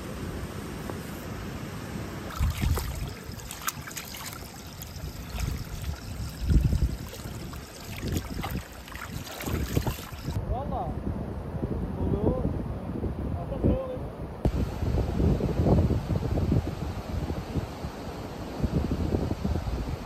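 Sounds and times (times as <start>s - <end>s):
water splashing and sloshing: 2.2s - 10.4s
water trickling: 2.3s - 10.4s.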